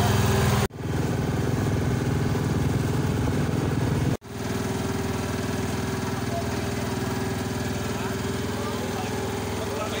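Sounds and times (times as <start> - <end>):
boat engine running: 0.0 - 10.0.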